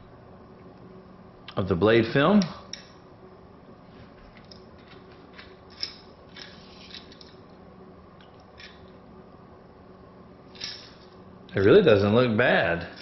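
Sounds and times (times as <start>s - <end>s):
quiet low hum: 0.0s - 13.0s.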